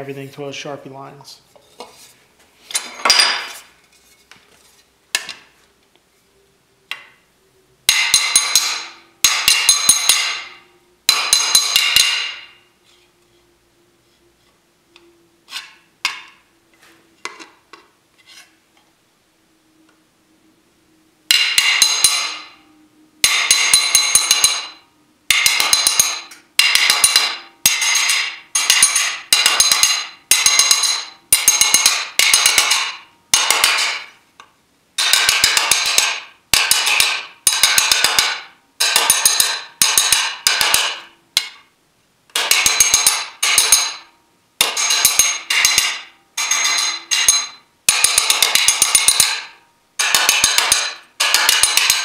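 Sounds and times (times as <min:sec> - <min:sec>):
hammer striking metal with ringing: 0:07.9 - 0:12.7, 0:21.3 - 0:34.1, 0:35.0 - 0:41.6, 0:42.3 - 0:52.0.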